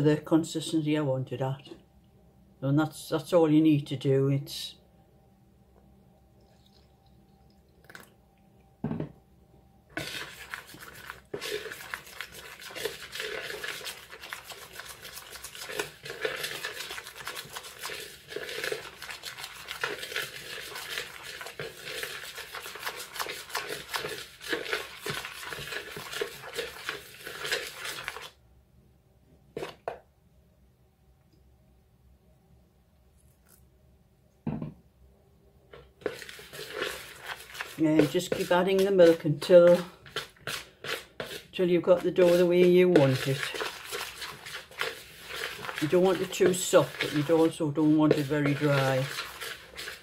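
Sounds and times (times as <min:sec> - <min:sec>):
knife scraping plastic bowl: 0:10.0 - 0:28.3, 0:29.6 - 0:29.8, 0:36.0 - 0:50.0.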